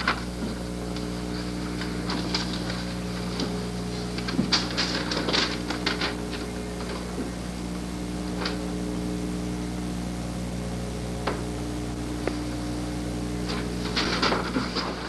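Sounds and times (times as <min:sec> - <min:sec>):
handling clicks and rustles: 0:00.0 - 0:08.8, 0:13.1 - 0:15.0
electrical mains hum: 0:00.0 - 0:15.0.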